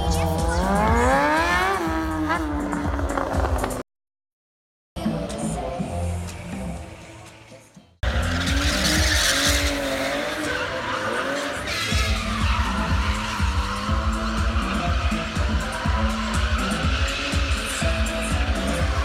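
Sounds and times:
car engines running hard: 0:00.0 - 0:03.8, 0:08.0 - 0:19.0
loud music with steady beat: 0:00.0 - 0:03.8, 0:05.0 - 0:19.0
tyres squealing: 0:08.0 - 0:19.0.

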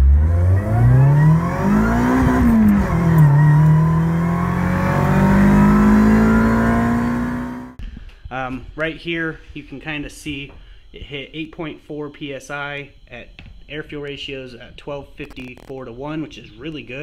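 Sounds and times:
car engine accelerating hard: 0:00.0 - 0:07.8.

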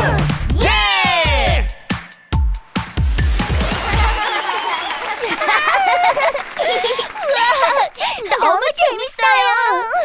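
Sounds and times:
heavy bass beat: 0:00.0 - 0:04.2.

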